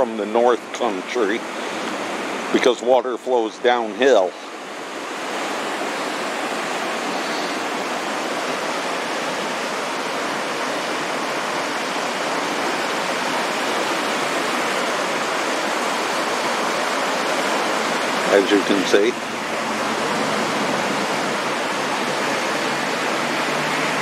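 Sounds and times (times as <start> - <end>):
river rushing: 0.0 - 24.0.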